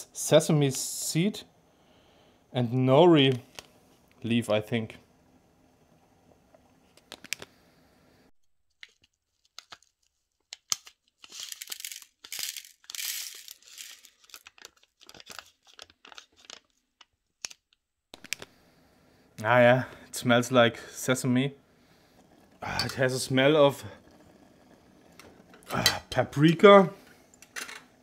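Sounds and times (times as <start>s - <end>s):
plastic sachet crinkling: 8.7s - 17.8s.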